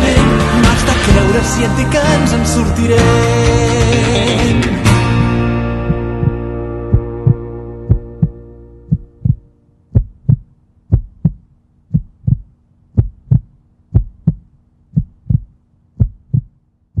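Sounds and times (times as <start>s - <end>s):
music: 0.0s - 9.6s
heartbeat thumps: 4.9s - 17.0s
faint hum: 5.2s - 17.0s.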